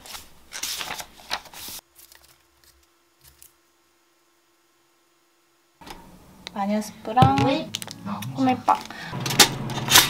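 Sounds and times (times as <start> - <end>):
book pages rustling: 0.0 - 3.5
faint steady hum: 0.0 - 10.0.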